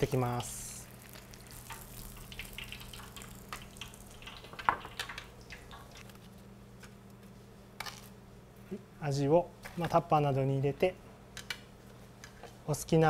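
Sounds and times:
low steady hum: 0:00.0 - 0:13.0
oil crackling and spitting: 0:00.4 - 0:06.2
oil dripping: 0:00.8 - 0:06.0.

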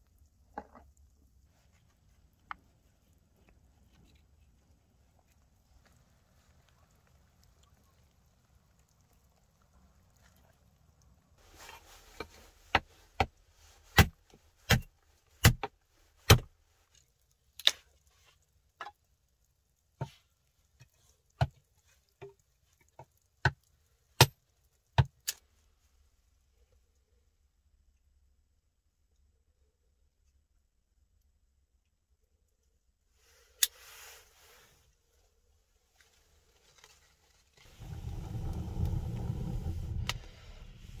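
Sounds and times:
axe chopping wood: 0:13.9 - 0:15.7, 0:16.3 - 0:16.5.

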